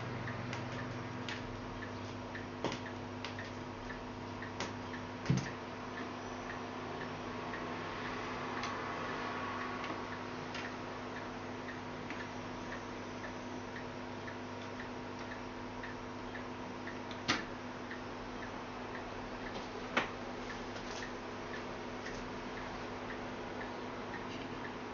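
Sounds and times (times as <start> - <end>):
light regular ticking: 0.0 - 24.9
turntable hum: 0.0 - 24.9.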